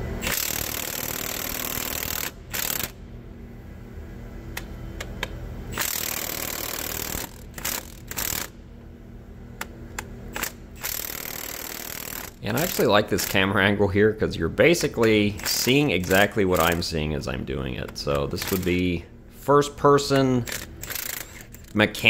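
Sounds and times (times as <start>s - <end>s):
impact wrench hammering: 0.2s - 3.0s, 5.7s - 8.6s, 10.3s - 13.5s, 18.2s - 18.9s, 20.5s - 21.7s
clicks: 4.5s - 5.4s, 9.6s - 10.6s.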